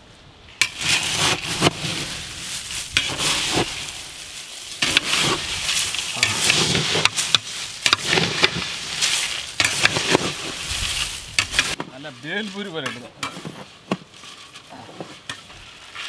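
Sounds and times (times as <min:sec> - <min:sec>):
metal spoons stirring crunchy chips: 0:04.7 - 0:13.4.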